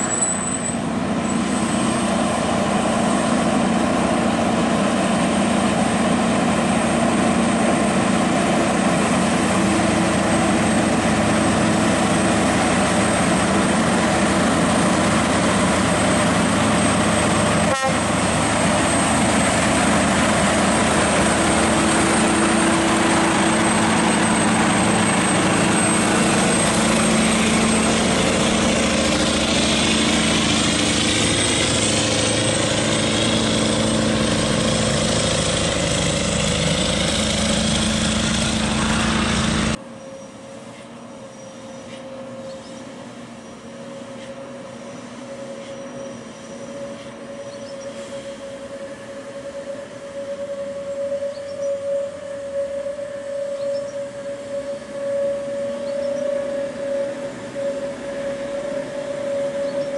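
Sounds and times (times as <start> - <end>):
truck brakes: 0.0 - 2.3, 45.0 - 48.6
truck engine running downhill: 0.0 - 39.9, 42.9 - 59.9.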